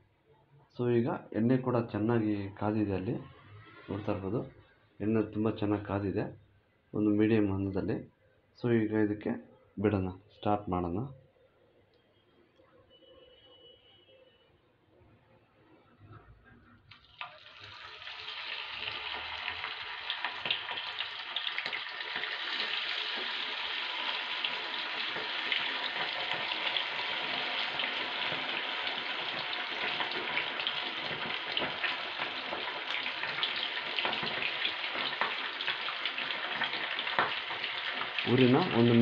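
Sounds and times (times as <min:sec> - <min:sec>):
chicken sizzling in hot oil: 0:17.0 - 0:39.0.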